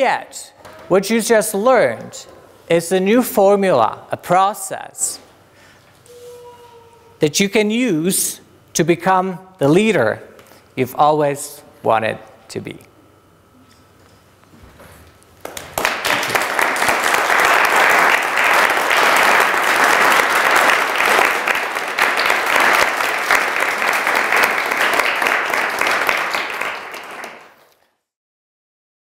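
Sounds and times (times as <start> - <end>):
audience applauding: 15.4 - 27.6.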